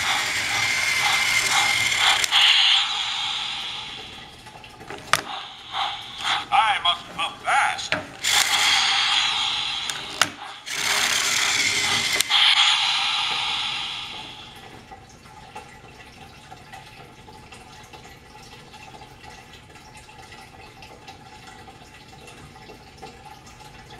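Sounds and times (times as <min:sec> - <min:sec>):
toy train motor whirring: 0:00.0 - 0:04.1, 0:08.2 - 0:14.4.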